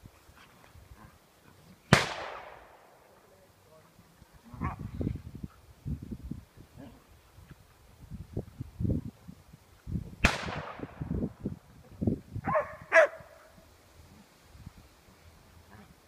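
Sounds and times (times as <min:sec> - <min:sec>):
distant gunshot with echo: 0:01.9 - 0:02.9, 0:10.2 - 0:11.0
dog barking: 0:12.4 - 0:13.4.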